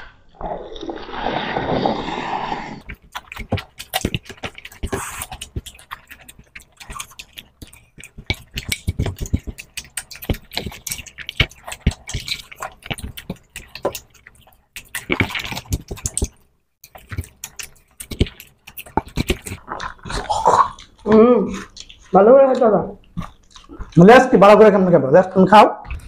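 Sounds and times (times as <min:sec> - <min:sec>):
lip smacks: 0:02.8 - 0:24.1
fingers squishing food: 0:02.8 - 0:26.0
wet chewing: 0:02.8 - 0:26.0.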